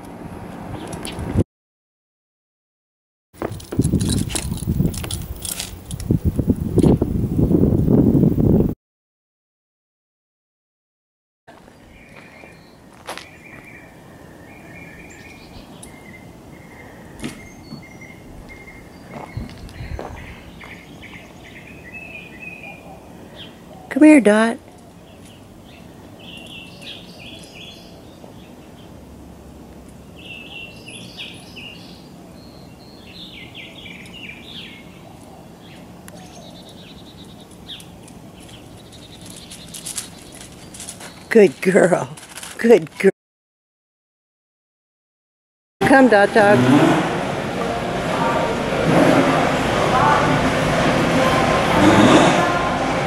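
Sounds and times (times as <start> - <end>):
outdoor background noise: 0.0 - 1.4, 3.4 - 8.8, 11.5 - 43.1, 45.8 - 53.0
songbird chirping: 11.5 - 29.1, 29.8 - 42.1.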